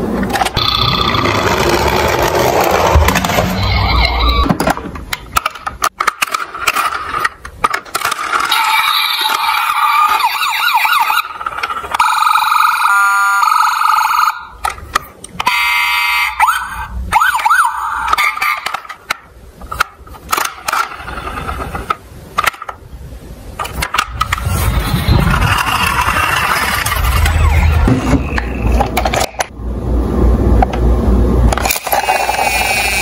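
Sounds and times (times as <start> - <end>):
toy electronic siren: 3.4 - 4.5, 8.5 - 14.7, 15.4 - 18.8, 24.5 - 28.5
plastic toy clicks and knocks: 4.4 - 10.2, 18.1 - 22.8, 23.6 - 24.4, 25.5 - 29.5.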